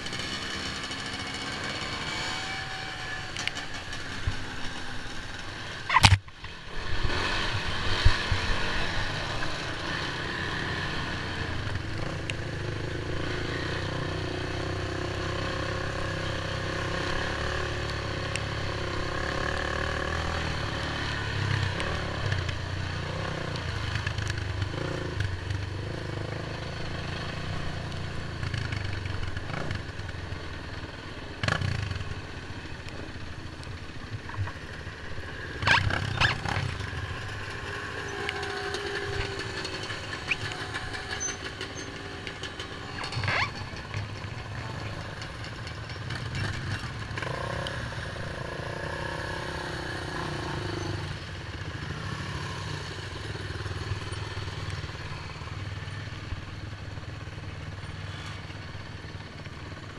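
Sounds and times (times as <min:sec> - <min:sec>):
quad bike engine running: 0:00.0 - 0:59.9.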